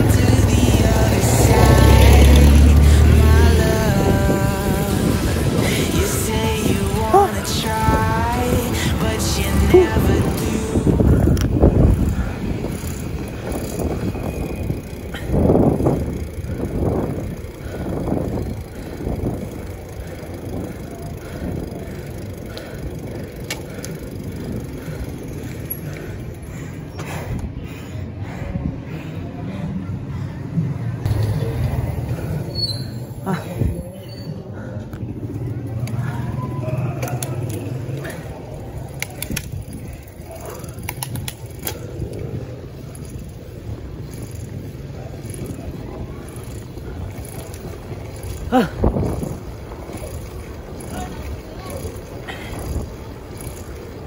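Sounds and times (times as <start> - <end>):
bike tyres rushing on asphalt: 0.0 - 54.0
wind and road rumble: 0.0 - 54.0.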